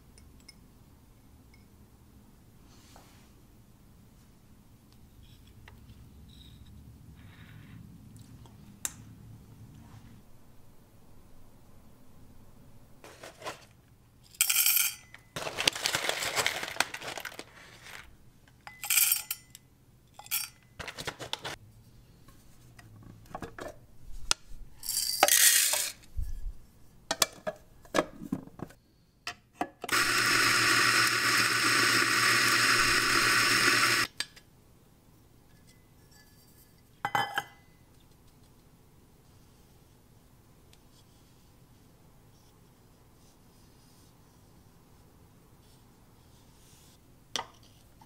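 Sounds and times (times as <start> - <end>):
coffee beans rattling in metal cup: 14.4 - 18.1, 24.8 - 26.0, 29.9 - 34.1
electric coffee grinder: 29.9 - 34.1.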